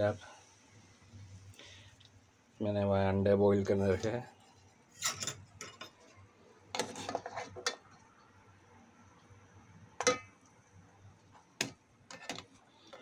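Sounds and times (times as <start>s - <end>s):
metal spoon clinking on steel pot: 10.0s - 10.4s.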